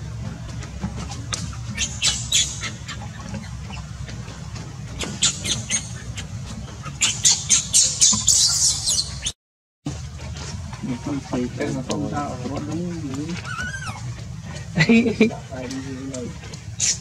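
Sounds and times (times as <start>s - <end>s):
baby monkey crying: 1.8s - 3.1s, 13.4s - 14.2s.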